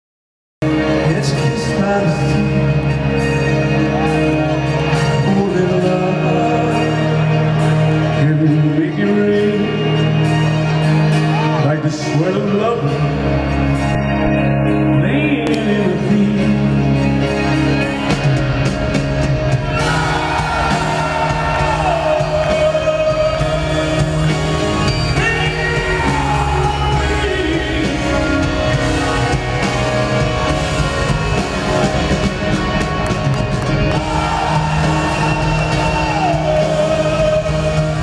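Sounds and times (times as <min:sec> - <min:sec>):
drums: 0:00.6 - 0:38.0
electric guitar: 0:00.6 - 0:38.0
man singing: 0:00.8 - 0:03.4, 0:04.8 - 0:10.3, 0:11.6 - 0:13.4, 0:14.6 - 0:17.3, 0:19.8 - 0:30.2, 0:34.0 - 0:38.0.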